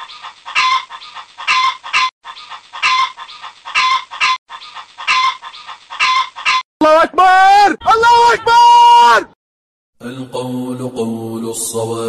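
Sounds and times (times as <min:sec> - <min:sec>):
chicken clucking and squawking: 0:00.0 - 0:06.6.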